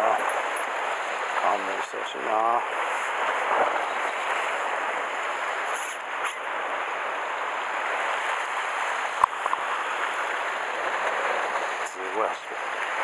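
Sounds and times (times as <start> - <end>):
surf washing over rocky shore: 0.0 - 13.0.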